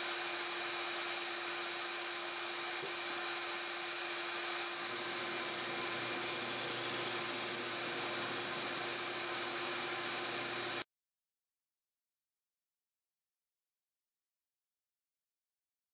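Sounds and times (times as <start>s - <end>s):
drill press motor whirring: 0.0s - 10.8s.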